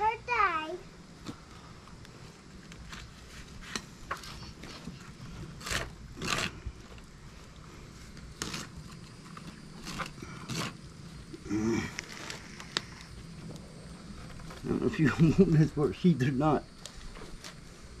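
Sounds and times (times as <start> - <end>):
knife scraping fish skin: 5.5 - 6.6, 8.4 - 10.8.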